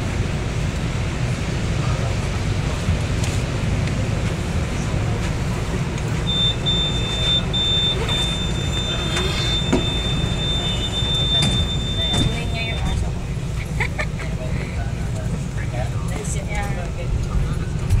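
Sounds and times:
low rumble of train: 0:00.0 - 0:18.0
murmur of passengers: 0:00.0 - 0:18.0
high-pitched warning tone: 0:06.2 - 0:13.1.

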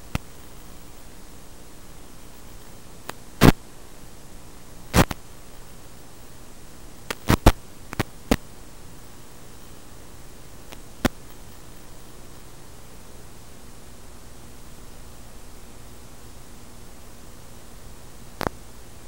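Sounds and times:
crackling bursts: 0:00.0 - 0:13.1, 0:18.3 - 0:18.7
static hiss: 0:00.0 - 0:19.0.

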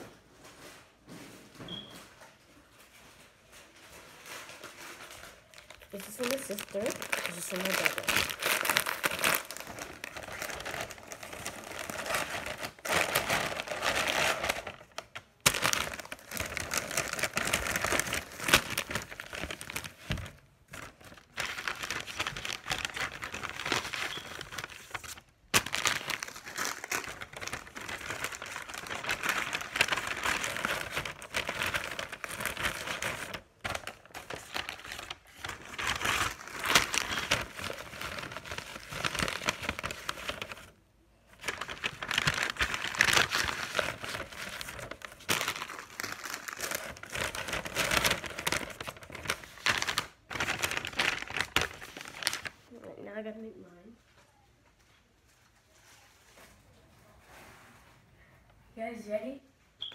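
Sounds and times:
plastic chip bag crinkling: 0:02.9 - 0:52.7.

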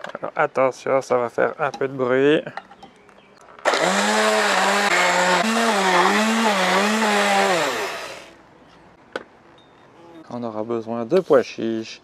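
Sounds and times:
stick blender motor whining: 0:03.6 - 0:08.4.

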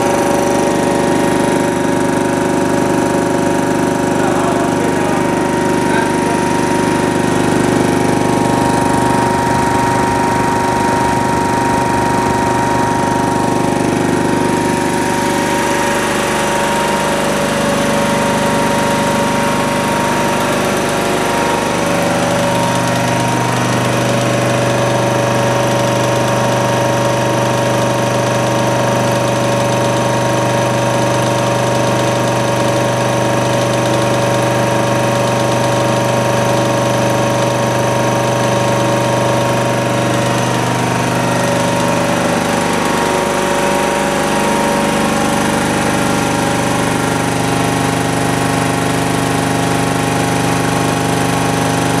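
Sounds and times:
air compressor running: 0:00.0 - 0:52.0.

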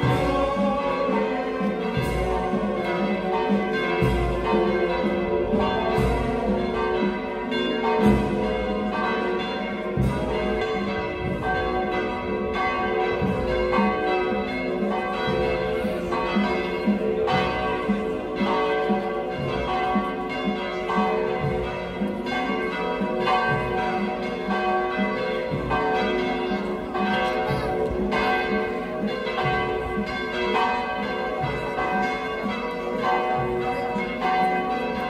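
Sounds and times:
church bells pealing: 0:00.0 - 0:35.0.

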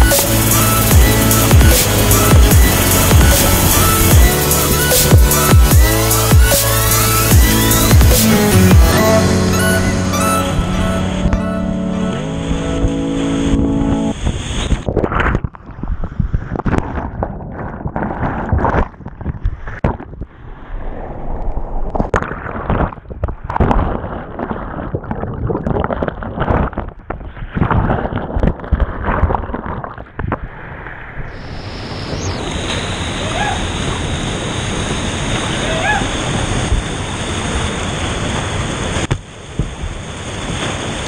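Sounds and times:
background music: 0:00.0 - 0:14.2
whitewater rushing and splashing: 0:00.0 - 0:14.9, 0:31.3 - 0:41.0.

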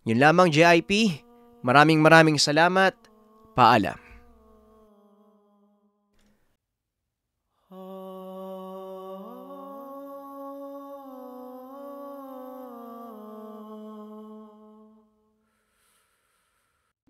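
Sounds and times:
low drone chord music: 0:00.0 - 0:06.3.

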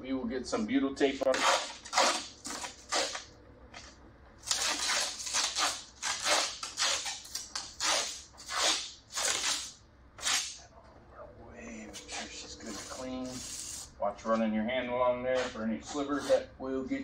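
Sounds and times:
plastic film peeling: 0:01.3 - 0:10.6.

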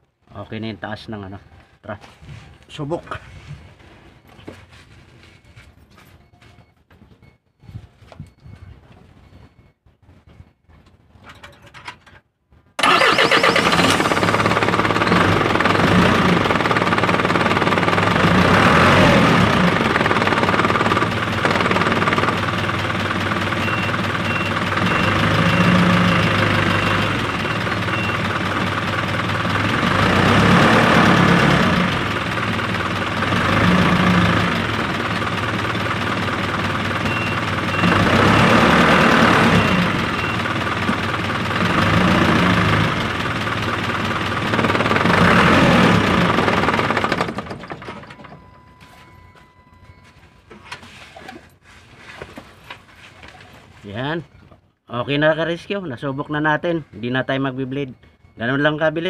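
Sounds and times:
diesel engine revving: 0:12.8 - 0:47.8.

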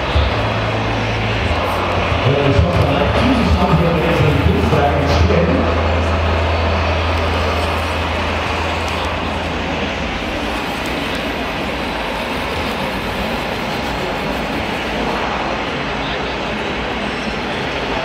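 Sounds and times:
crowd din indoors: 0:00.0 - 0:18.0
low engine-like drone: 0:00.0 - 0:18.0.

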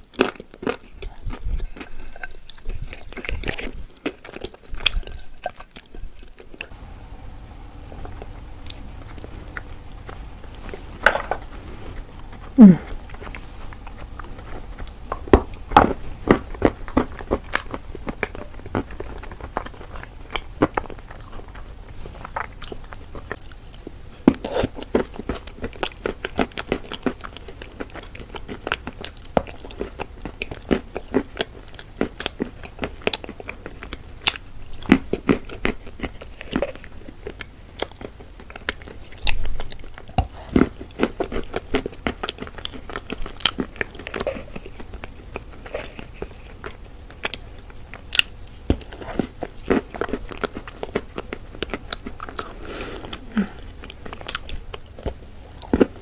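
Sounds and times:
chewing and crunching chalk: 0:00.0 - 0:06.8, 0:07.8 - 0:56.0
wet mouth sounds: 0:11.9 - 0:15.7.

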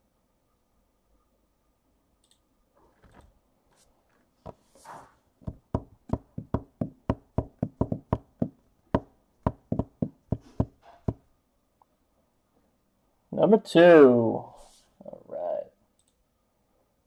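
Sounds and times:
sharp knocks on hard surface: 0:05.4 - 0:11.3.

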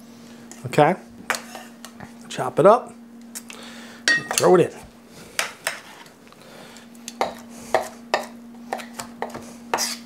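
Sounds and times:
faint steady hum: 0:00.0 - 0:10.0
knife chopping on wooden board: 0:07.2 - 0:10.0.

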